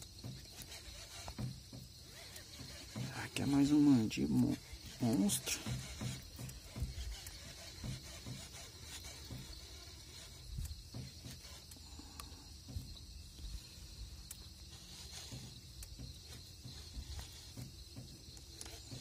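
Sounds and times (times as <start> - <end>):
knocks in aluminium boat: 0.0 - 13.5
night insects chirring: 0.0 - 19.0
faint clicks: 4.2 - 19.0.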